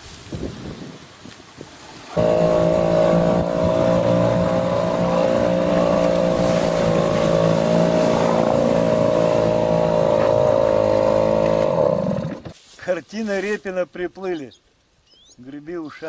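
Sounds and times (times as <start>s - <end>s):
outboard motor running: 2.1s - 12.6s.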